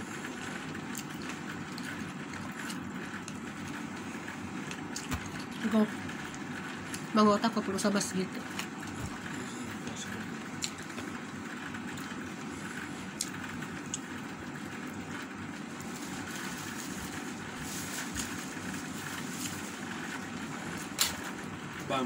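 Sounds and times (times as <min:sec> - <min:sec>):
person chewing: 0:00.8 - 0:03.4.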